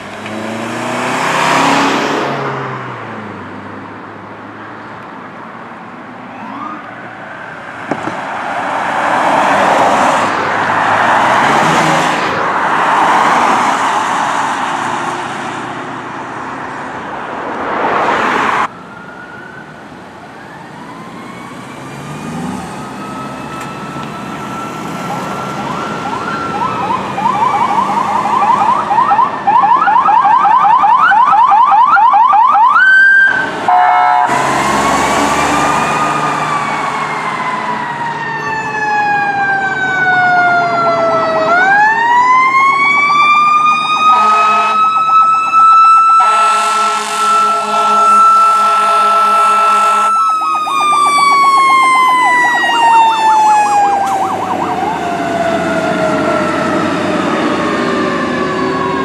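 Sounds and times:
vehicle passing: 0.0 - 5.0, 6.4 - 19.4, 20.4 - 29.9, 32.7 - 59.0
police siren wailing and yelping: 6.2 - 7.9, 18.0 - 59.0.

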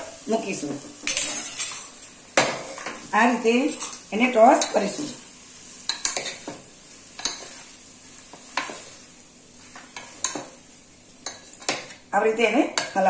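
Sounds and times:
soft sizzle: 0.0 - 13.0
metal clinking on pot: 11.2 - 12.0.

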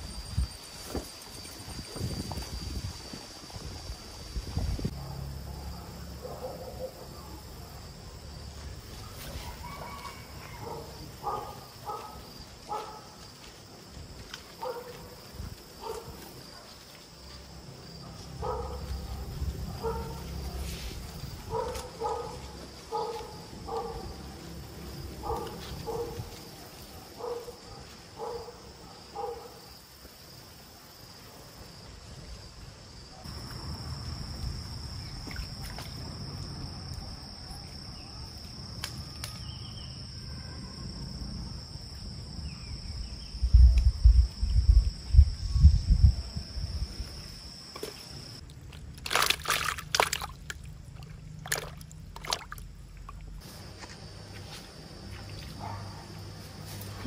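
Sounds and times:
water sloshing and trickling: 33.4 - 36.9, 47.7 - 53.9.

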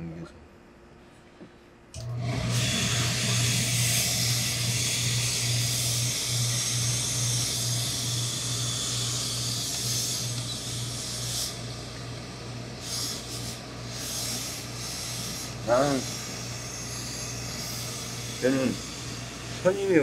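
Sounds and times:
low electric buzz: 0.0 - 20.0
steam iron hissing: 2.2 - 20.0.

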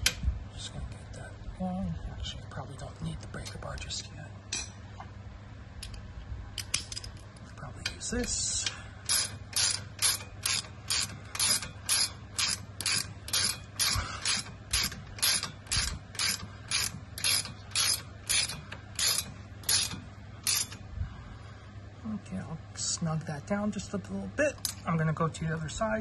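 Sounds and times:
socket ratchet clicking: 9.0 - 20.8.

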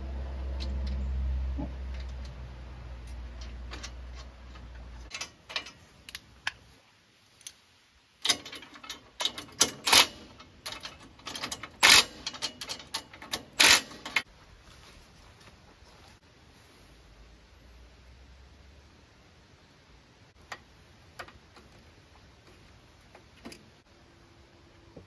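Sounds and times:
metal bolts clicking and clanking: 3.0 - 6.6, 8.2 - 14.3.

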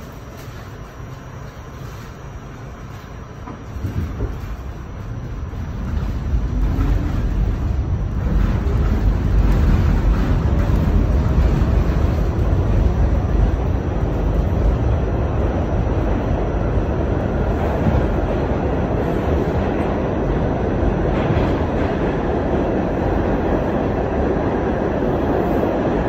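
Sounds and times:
subway train rumble: 0.0 - 26.0.

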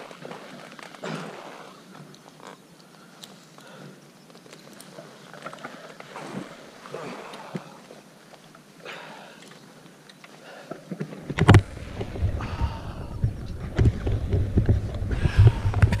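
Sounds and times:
wind buffeting microphone: 11.2 - 16.0.

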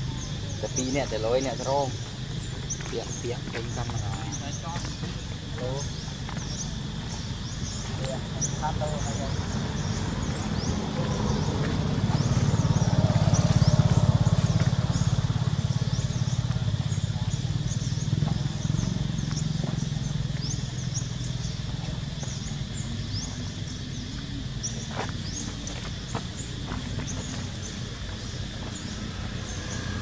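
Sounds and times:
high insect-like hum: 0.0 - 30.0.

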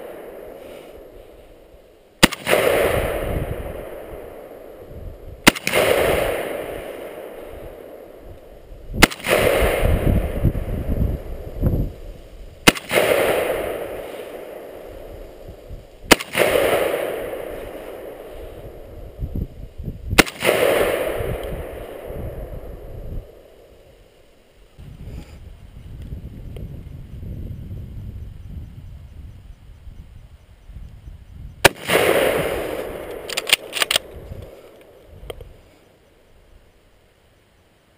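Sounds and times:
rifle single shots echoing: 0.0 - 11.4, 12.6 - 19.2, 20.1 - 23.8, 31.6 - 35.1.

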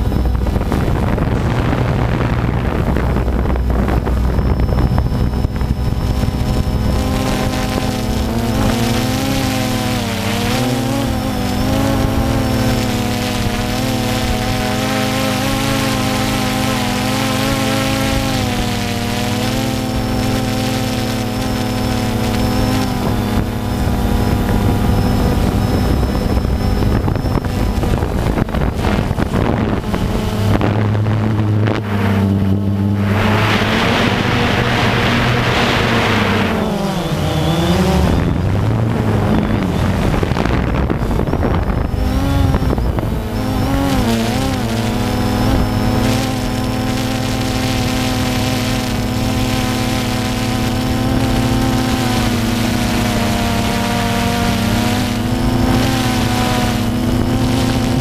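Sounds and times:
drone propellers buzzing: 0.0 - 58.0
rushing noise: 21.2 - 44.1.

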